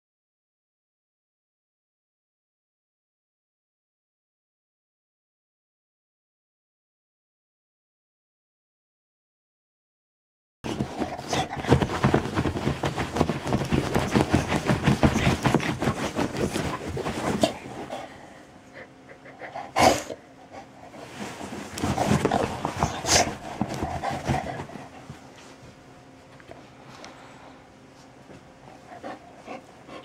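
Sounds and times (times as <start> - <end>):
dog panting: 10.7 - 25.5, 28.6 - 30.0.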